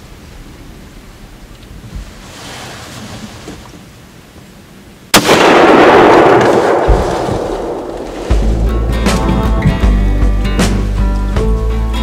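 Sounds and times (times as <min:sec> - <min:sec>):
rifle shot with echo: 0:05.1 - 0:08.6.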